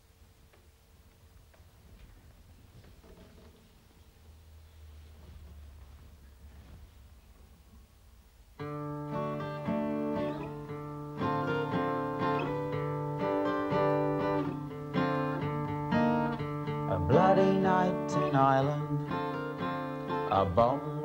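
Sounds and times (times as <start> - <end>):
faint low hum: 0.0 - 21.0
acoustic guitar chords: 8.6 - 21.0.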